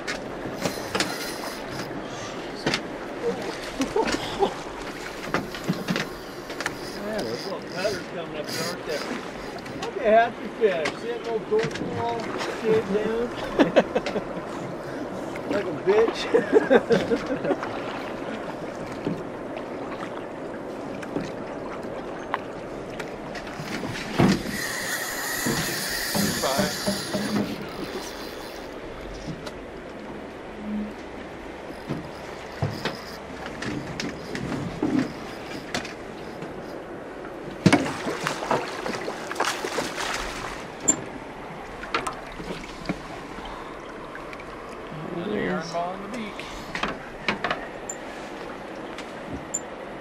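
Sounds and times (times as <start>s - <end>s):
river water rushing against hull: 0.0s - 50.0s
faint ticks: 4.8s - 9.9s
small splashes: 37.6s - 40.8s.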